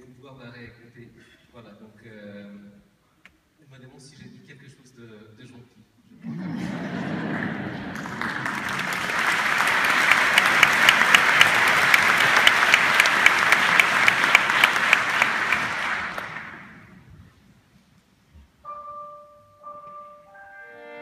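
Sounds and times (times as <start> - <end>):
audience applauding: 6.7 - 17.0.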